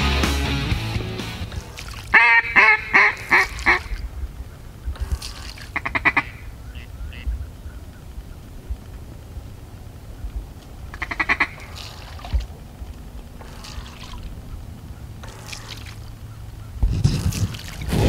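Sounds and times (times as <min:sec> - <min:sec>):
duck quacking: 0:02.1 - 0:04.0, 0:05.0 - 0:07.4, 0:10.9 - 0:12.0.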